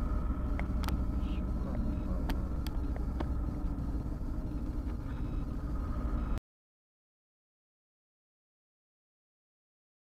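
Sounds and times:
car engine and tyre rumble: 0.0 - 6.4.

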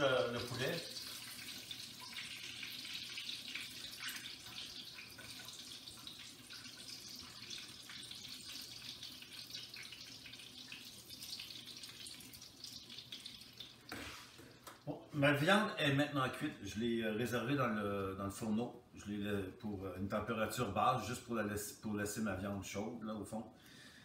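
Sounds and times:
food frying in a pan: 0.0 - 14.9.

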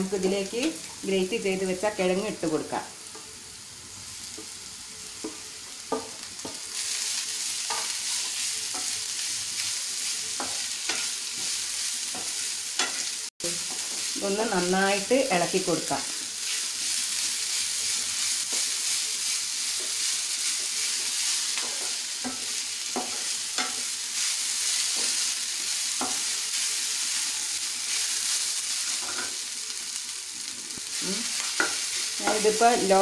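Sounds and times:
potato sizzling in hot oil: 0.0 - 33.0
spatula scraping and tapping pan: 7.6 - 9.0, 10.3 - 14.0, 21.5 - 23.9, 26.0 - 26.3, 31.4 - 32.5.

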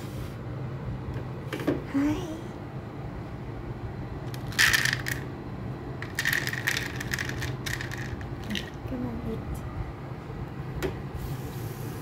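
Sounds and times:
dry kibble clattering: 4.3 - 5.3, 6.0 - 8.8.

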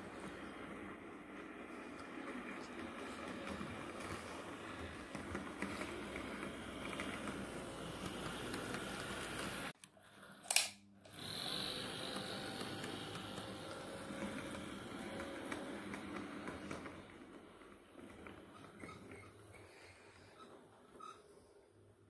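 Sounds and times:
model train motor whirring: 2.8 - 9.7, 11.1 - 17.1
sharp click: 10.5 - 10.8.

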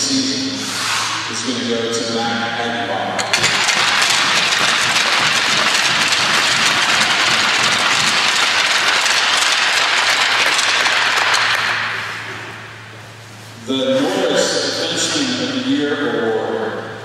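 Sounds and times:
crowd applauding: 3.3 - 11.9.

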